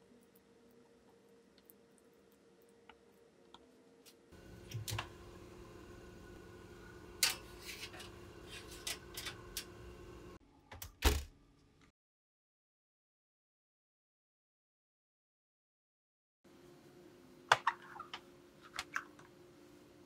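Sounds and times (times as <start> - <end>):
faint steady hum: 0.0 - 10.6
baking utensils clicking: 7.2 - 9.8.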